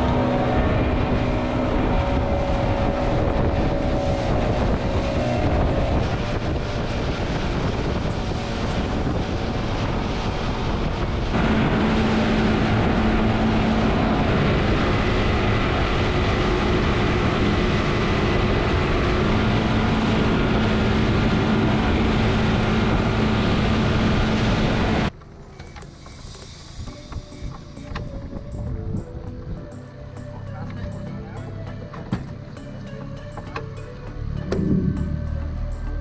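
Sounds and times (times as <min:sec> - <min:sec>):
rushing water: 0:00.0 - 0:28.4
rushing wind: 0:00.0 - 0:30.2
motorboat engine drone: 0:00.0 - 0:36.0.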